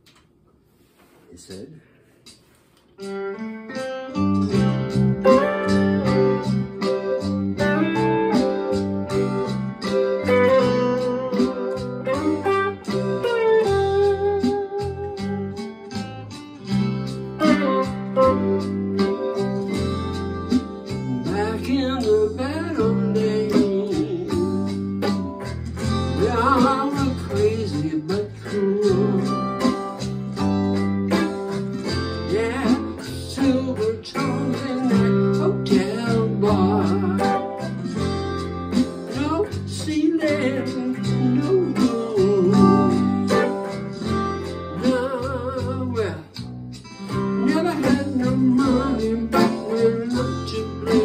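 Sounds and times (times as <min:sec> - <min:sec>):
steady beat: 0:02.1 - 0:51.0
electric guitar: 0:02.9 - 0:51.0
bass line: 0:04.1 - 0:51.0
man singing: 0:21.0 - 0:24.9, 0:26.2 - 0:30.0, 0:32.3 - 0:37.7, 0:39.1 - 0:43.5, 0:44.7 - 0:46.5, 0:47.1 - 0:51.0.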